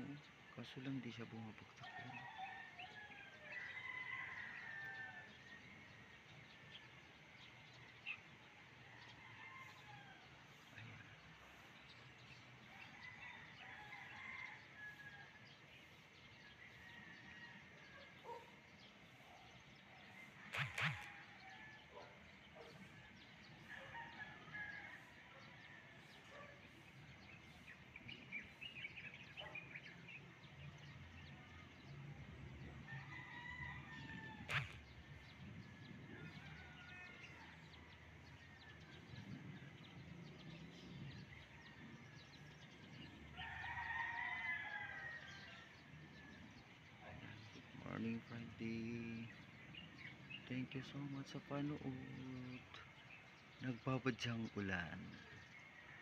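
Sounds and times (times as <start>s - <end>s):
bird and chicken calls: 0.0s - 56.0s
rooster crowing: 20.2s - 22.1s, 32.8s - 35.3s, 42.5s - 45.7s.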